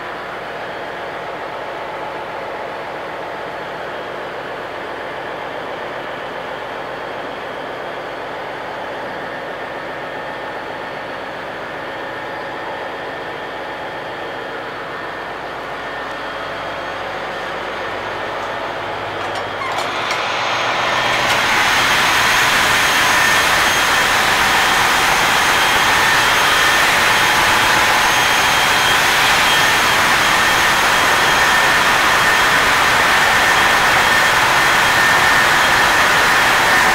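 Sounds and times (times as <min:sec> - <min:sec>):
engine room machinery drone: 0:00.0 - 0:36.9
high whine: 0:15.2 - 0:36.9.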